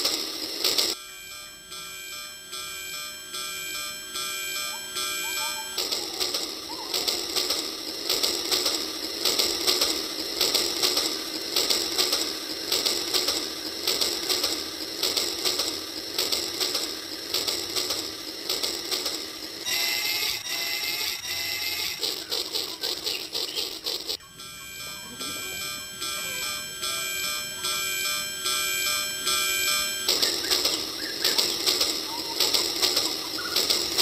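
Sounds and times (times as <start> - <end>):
toy train motor whirring: 0.0 - 34.0
wheels clicking and rattling: 0.0 - 34.0
short wavering tones: 24.2 - 33.6.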